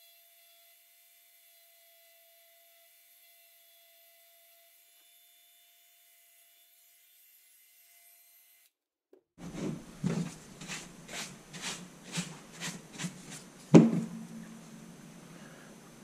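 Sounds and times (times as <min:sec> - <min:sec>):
paintbrush sweeping a rubber mat: 0:09.4 - 0:14.6
sharp knock: 0:13.7 - 0:14.7.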